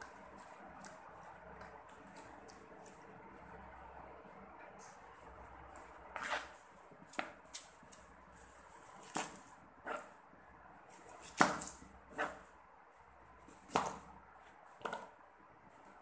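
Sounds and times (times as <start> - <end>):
knife chopping on wooden board: 11.1 - 12.5, 13.5 - 14.1.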